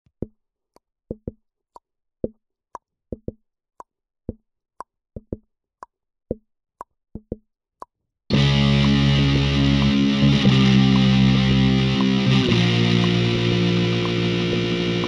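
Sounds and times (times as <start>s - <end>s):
sparse percussion rhythm: 1.1s - 1.4s, 3.1s - 3.4s, 5.2s - 5.5s, 7.2s - 7.4s, 8.3s - 15.0s
heavy metal music: 8.3s - 15.0s.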